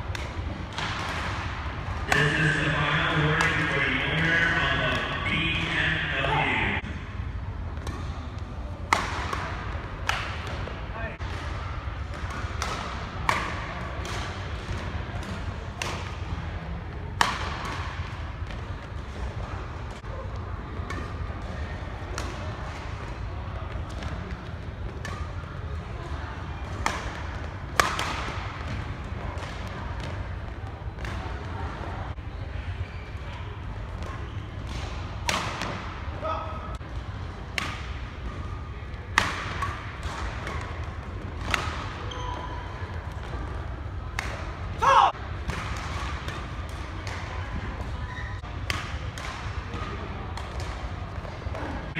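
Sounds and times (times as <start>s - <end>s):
rackets hitting shuttlecock: 0.0s - 5.8s, 8.8s - 16.3s, 17.1s - 18.9s, 20.7s - 23.0s, 23.9s - 25.4s, 26.6s - 30.3s, 33.9s - 36.0s, 36.7s - 38.5s, 39.1s - 47.9s, 48.5s - 51.4s
low rumble of hall: 0.0s - 51.9s.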